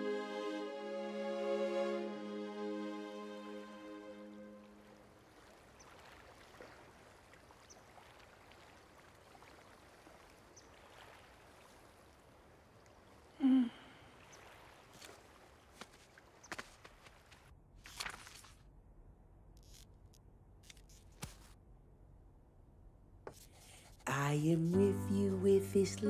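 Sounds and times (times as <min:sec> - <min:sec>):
water lapping: 0:04.6 - 0:18.6.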